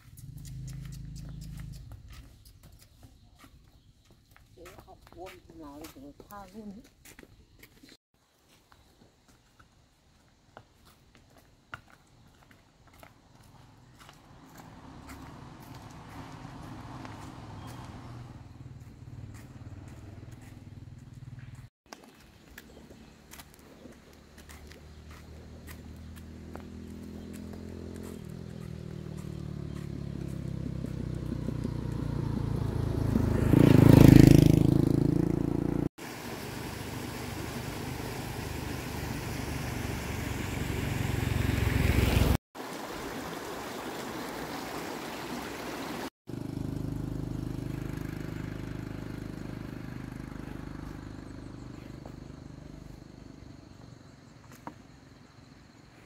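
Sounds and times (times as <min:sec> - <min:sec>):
small engine running: 0:00.0 - 0:02.4, 0:13.4 - 0:21.7, 0:23.3 - 0:42.4, 0:45.0 - 0:54.0.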